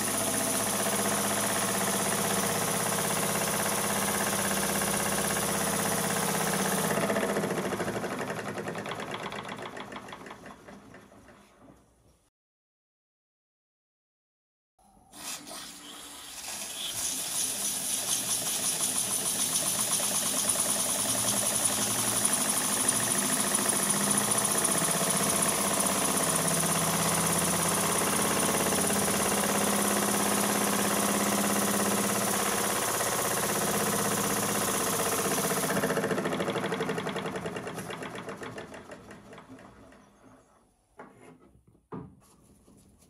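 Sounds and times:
steam engine chuffing and hissing: 15.2s - 38.9s.

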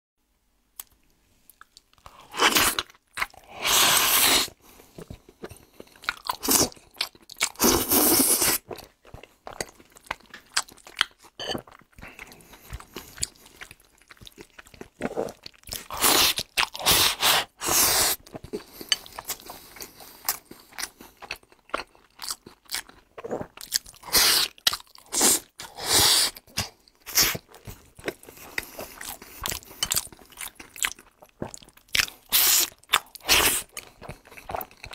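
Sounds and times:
person slurping food: 2.2s - 2.8s, 3.4s - 4.6s, 7.6s - 8.7s, 15.0s - 20.4s, 23.4s - 26.4s, 32.3s - 33.7s.

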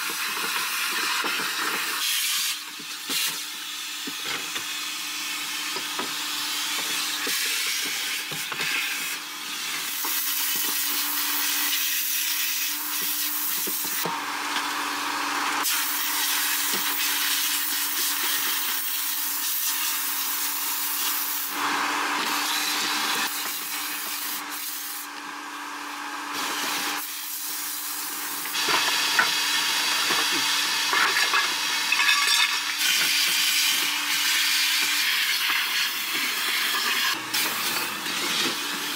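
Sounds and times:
vacuum cleaner running: 0.0s - 38.9s.

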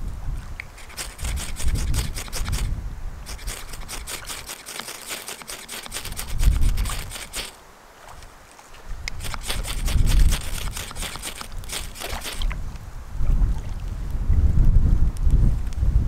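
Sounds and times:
wind buffeting microphone: 0.0s - 4.5s, 5.8s - 7.5s, 8.1s - 16.0s
knife shaving wooden stick: 0.8s - 2.7s, 3.3s - 7.6s, 9.2s - 12.5s.

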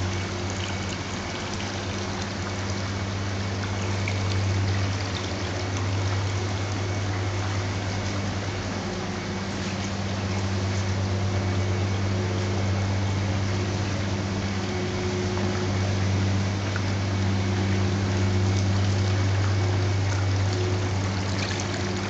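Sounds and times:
exhaust fans humming: 0.0s - 22.0s
water circulating: 0.0s - 22.0s.

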